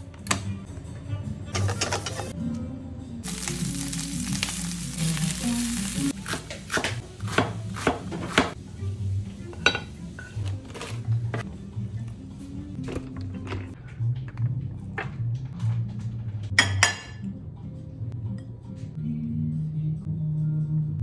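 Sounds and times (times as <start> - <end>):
background music: 0.0 - 21.0
frying sizzle: 3.2 - 7.0
knife chopping on cutting board: 6.2 - 8.6.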